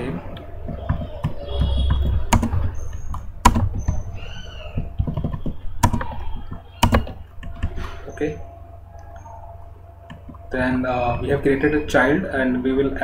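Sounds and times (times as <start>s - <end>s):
low steady hum: 0.0s - 13.0s
keyboard typing clicks: 0.3s - 4.0s, 4.8s - 7.8s.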